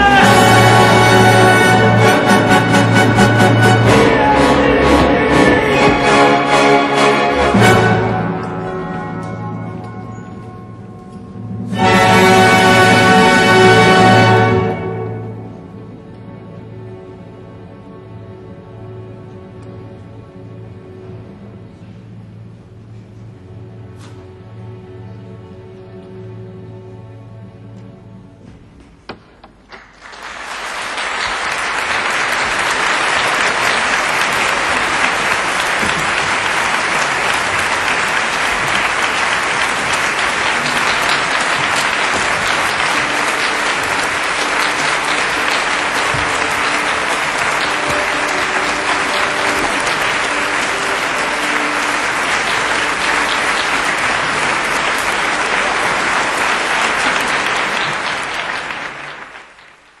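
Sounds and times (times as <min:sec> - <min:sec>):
audience applauding: 0:29.6 - 1:00.0.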